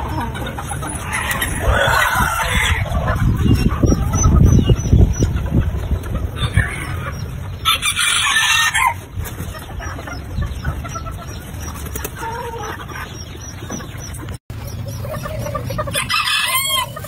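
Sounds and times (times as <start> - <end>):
soft hen clucks: 0.0 - 17.0
rooster crowing: 16.0 - 17.0.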